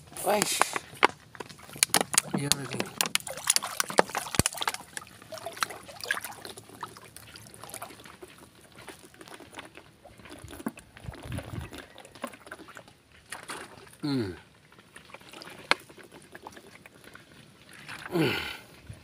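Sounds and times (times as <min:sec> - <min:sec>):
water sloshing and splashing: 0:00.0 - 0:19.0
sharp knocks and clicks: 0:00.6 - 0:04.8.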